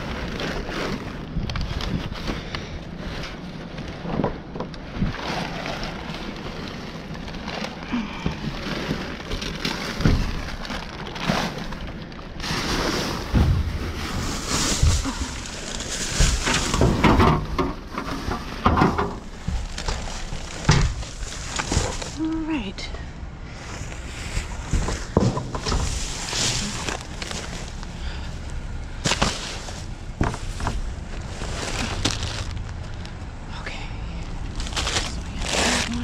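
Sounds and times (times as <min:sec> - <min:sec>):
plastic bags rustling and crinkling: 0:00.0 - 0:36.0.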